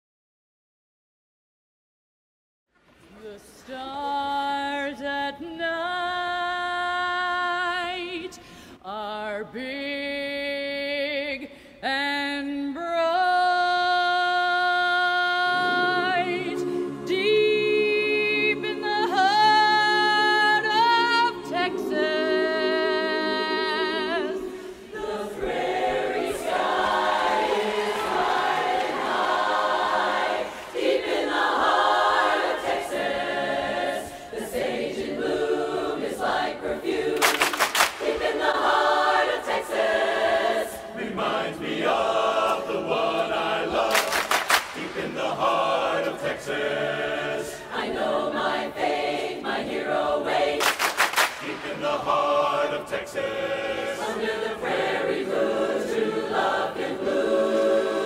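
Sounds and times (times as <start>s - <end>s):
woman singing with vibrato: 3.2s - 25.5s
choir singing: 3.7s - 58.0s.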